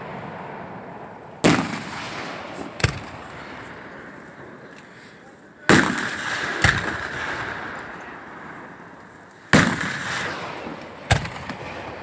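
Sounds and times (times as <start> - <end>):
fireworks booming: 0.0 - 4.7, 5.6 - 12.0.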